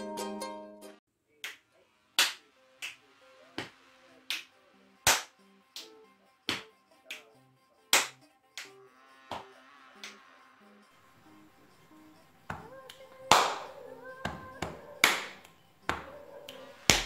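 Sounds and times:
plucked-string music: 0.0s - 1.0s
hand claps: 1.4s - 1.6s, 2.2s - 10.2s, 12.5s - 17.0s
finger snaps: 8.0s - 8.7s, 12.5s - 17.0s
faint backing track: 10.9s - 17.0s.

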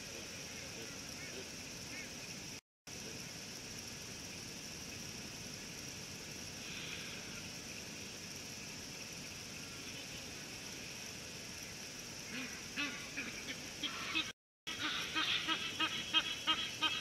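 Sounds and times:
background hiss: 0.0s - 17.0s
insects droning: 0.0s - 17.0s
honking bird call: 12.3s - 17.0s.

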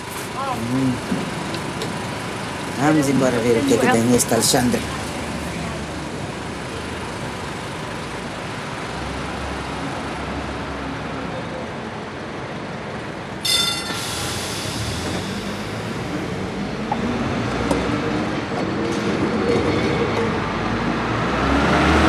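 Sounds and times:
rumble of rolling traffic: 0.0s - 22.0s
tram metallic screech: 13.4s - 20.5s.

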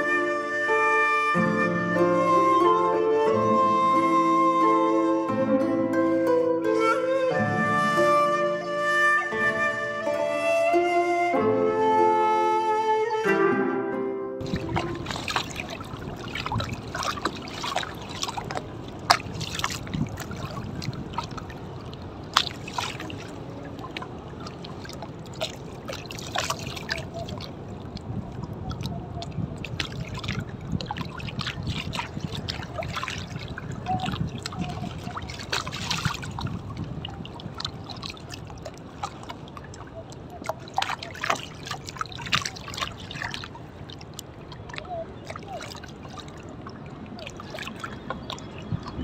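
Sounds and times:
small splashes: 14.4s - 49.0s
water lapping against boat: 14.4s - 49.0s.

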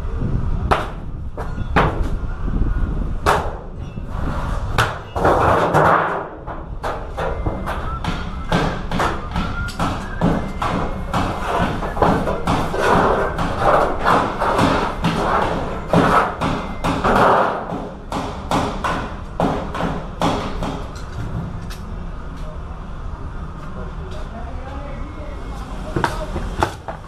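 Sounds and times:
sharp knocks and thumps: 4.7s - 21.4s.

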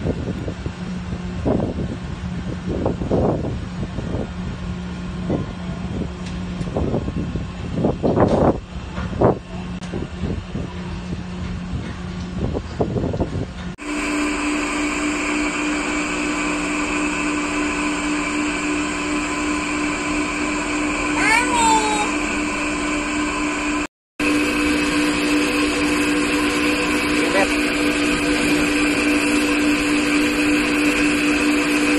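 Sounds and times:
wind noise: 0.0s - 13.7s.

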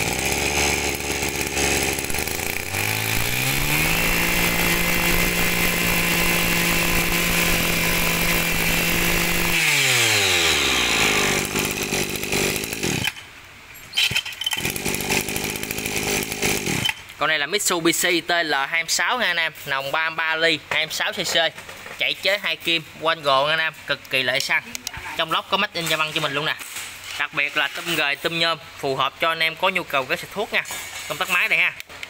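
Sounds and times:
brush cutter engine revving: 0.0s - 13.3s, 14.5s - 17.0s.

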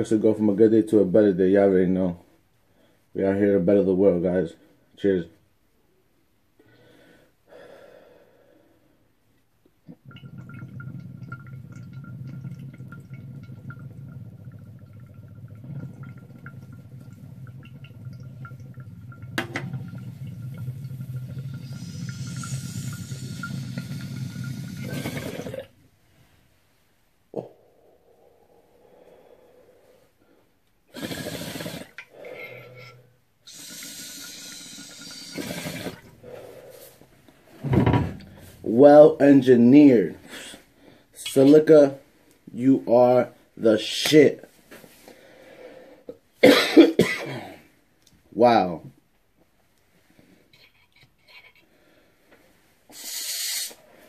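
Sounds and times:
water bubbling through a bong: 9.7s - 25.8s, 30.9s - 37.1s.

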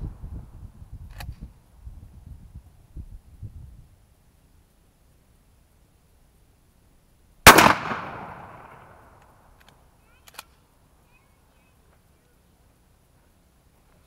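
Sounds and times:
shotgun firing: 7.5s - 9.0s
shotgun pump slide clicks: 9.6s - 10.6s.

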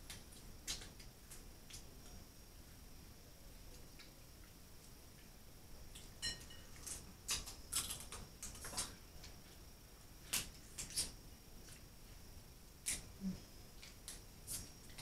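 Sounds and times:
crab shells cracking: 6.8s - 9.0s.

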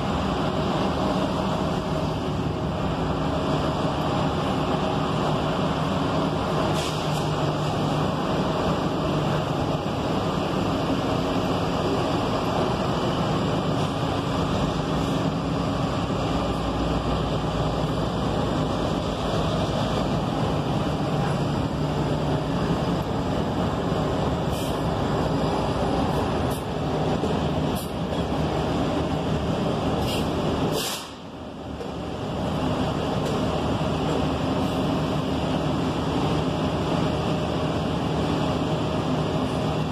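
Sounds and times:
bus engine hum: 0.0s - 39.9s
short high hisses: 30.0s - 31.2s.

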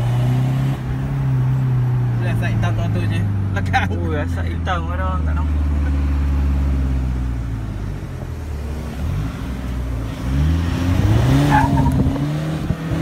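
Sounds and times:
pickup engine revving: 5.2s - 13.0s.

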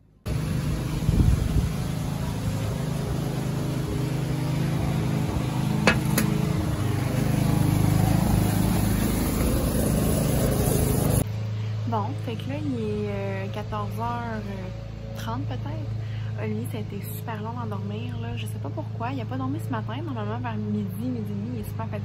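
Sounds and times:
motor humming: 0.3s - 11.2s.

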